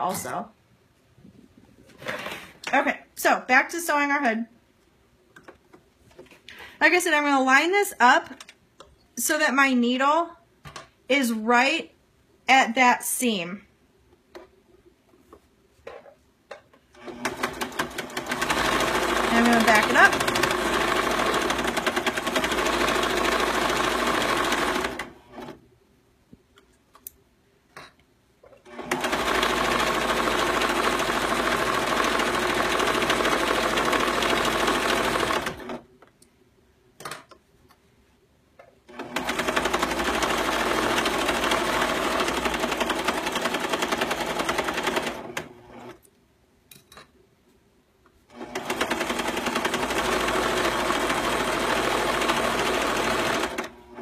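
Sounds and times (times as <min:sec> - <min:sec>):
sewing machine stitching: 0:17.0 - 0:25.6, 0:28.6 - 0:35.8, 0:38.9 - 0:46.0, 0:48.3 - 0:54.0.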